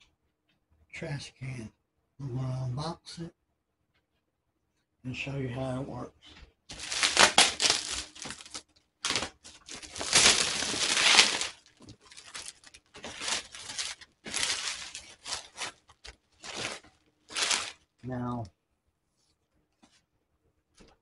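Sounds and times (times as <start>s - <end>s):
plastic wrap crinkling and tearing: 6.7s - 18.0s.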